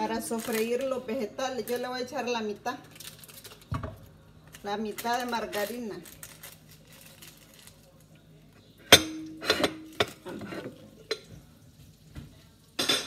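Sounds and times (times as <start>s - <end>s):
metal cookware clanking: 8.8s - 11.4s, 12.8s - 13.0s.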